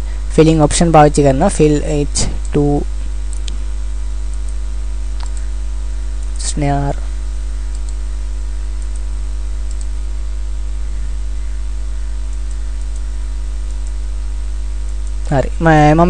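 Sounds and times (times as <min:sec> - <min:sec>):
electrical hum: 0:00.0 - 0:16.0
mouse clicks: 0:05.2 - 0:05.4.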